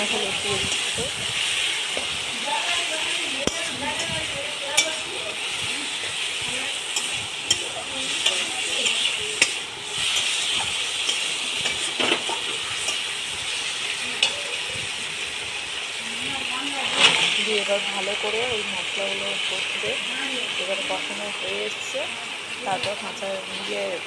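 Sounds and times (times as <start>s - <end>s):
metal spatula scraping pan: 0.0s - 13.2s
vegetables sizzling in oil: 0.0s - 24.0s.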